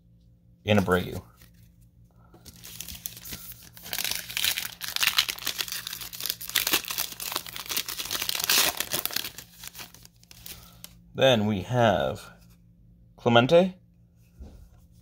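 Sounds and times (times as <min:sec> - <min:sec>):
plastic wrapper crinkling and tearing: 0:02.4 - 0:10.9.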